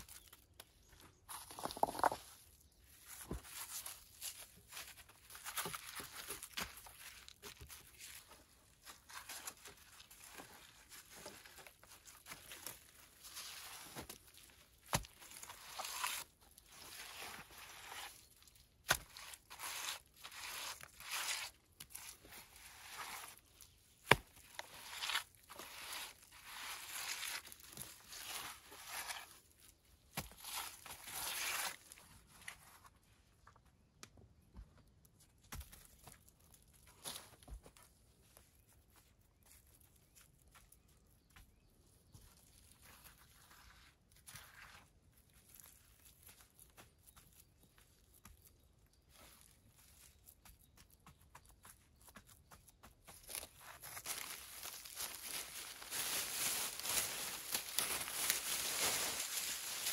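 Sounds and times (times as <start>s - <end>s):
soil scraping and crumbling: 0.0s - 33.1s, 53.1s - 59.9s.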